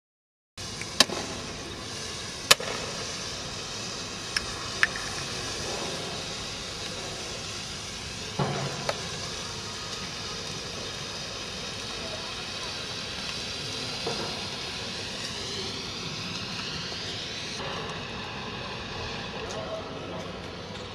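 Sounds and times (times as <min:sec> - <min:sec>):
flares hissing: 0:00.6 - 0:20.9.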